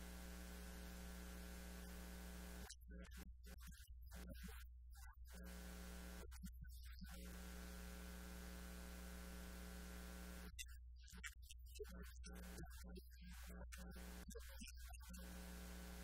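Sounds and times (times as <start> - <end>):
multi-tone electrical buzz: 0.0 - 4.5, 5.3 - 10.6, 13.3 - 16.0.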